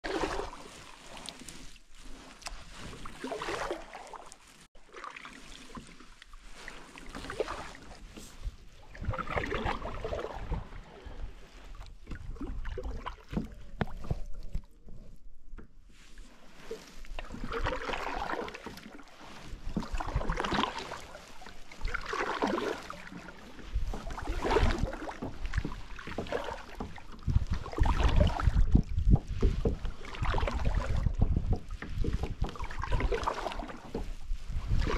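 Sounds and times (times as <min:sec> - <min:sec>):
water swishing from paddle strokes: 0:00.0 - 0:34.9
wind rumble on microphone: 0:07.5 - 0:16.1, 0:23.2 - 0:34.9.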